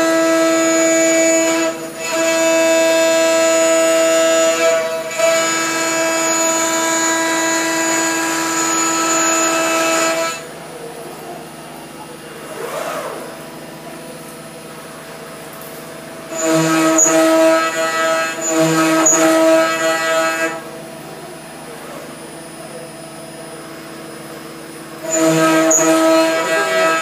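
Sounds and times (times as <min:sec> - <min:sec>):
high-pitched metal cutting tone: 0:00.0 - 0:10.6, 0:16.2 - 0:20.8, 0:21.4 - 0:27.0
router spindle whine: 0:00.0 - 0:27.0.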